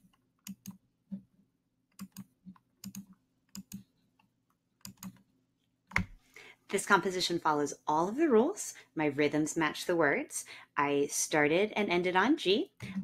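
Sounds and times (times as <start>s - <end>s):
computer mouse clicks: 0.1s - 0.8s, 1.9s - 3.9s, 4.8s - 5.2s, 5.9s - 6.2s.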